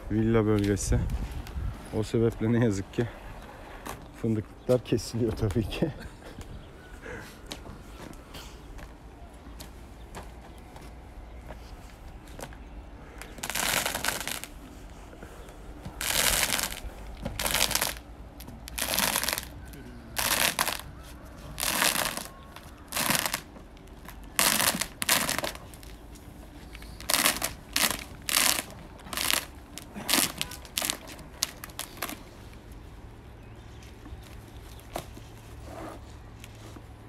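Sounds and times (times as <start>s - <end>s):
membrane sheet crackling: 13.2s - 15.0s, 15.8s - 32.8s.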